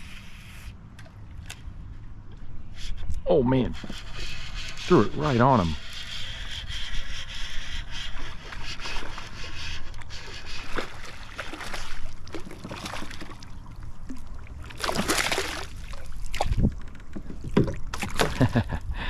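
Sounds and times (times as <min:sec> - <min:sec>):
water splashing from fish: 0:08.2 - 0:16.6.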